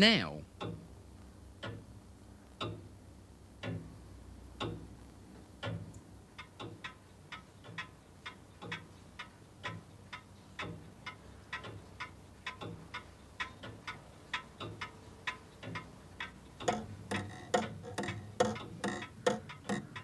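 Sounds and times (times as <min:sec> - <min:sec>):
slow clock ticking: 0:00.0 - 0:20.0
faster clock ticks: 0:06.4 - 0:20.0.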